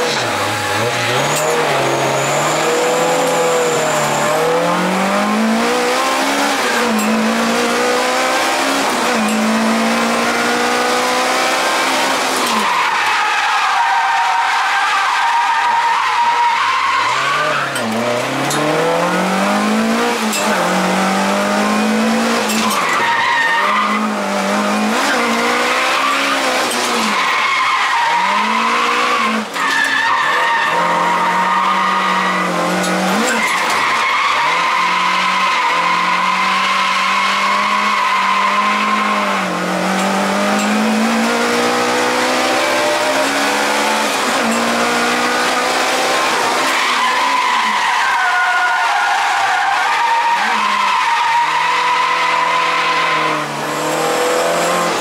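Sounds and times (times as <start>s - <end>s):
car engine revving: 0.0s - 55.0s
tyres squealing: 0.1s - 7.6s, 12.4s - 18.0s, 42.4s - 53.6s.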